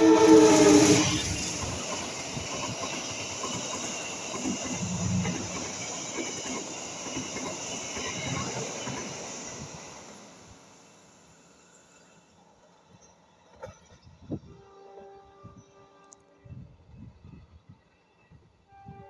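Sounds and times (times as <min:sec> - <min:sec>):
locomotive horn chord: 0:00.0 - 0:01.1
train coaches rumbling: 0:00.0 - 0:11.0.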